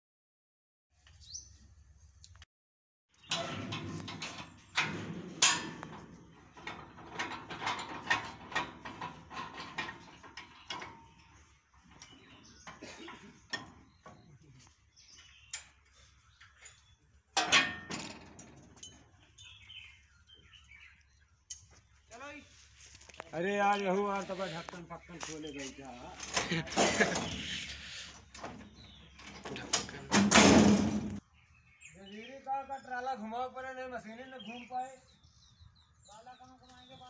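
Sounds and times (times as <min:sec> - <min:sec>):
metal clanking and rattling: 0:03.2 - 0:14.1, 0:17.4 - 0:19.2, 0:26.2 - 0:27.6, 0:28.3 - 0:31.2.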